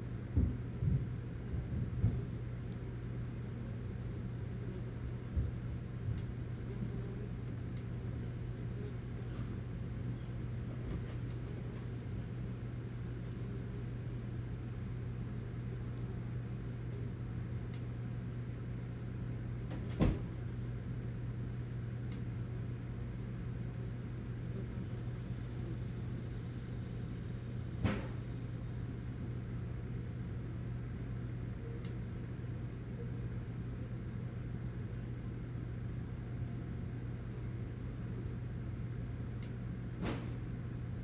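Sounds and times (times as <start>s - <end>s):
low background rumble: 0.0s - 19.7s
low mechanical hum: 0.0s - 41.0s.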